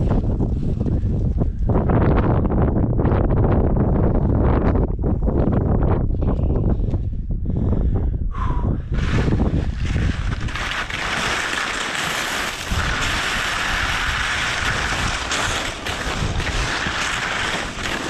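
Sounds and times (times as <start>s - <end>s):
wind buffeting microphone: 0.0s - 18.0s
skis hissing over snow: 9.0s - 18.0s.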